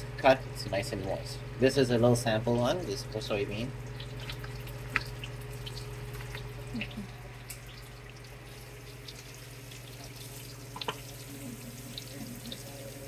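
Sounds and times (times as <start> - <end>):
chicken frying in hot oil: 2.6 - 13.0
oil popping and crackling: 3.8 - 13.0.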